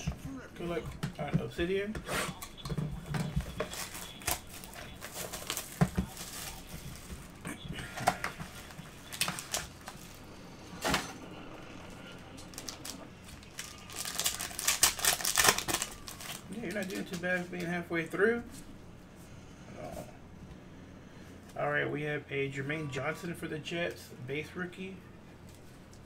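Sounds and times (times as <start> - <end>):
plastic wrap and cardboard rustling: 2.3 - 11.1, 12.4 - 18.6.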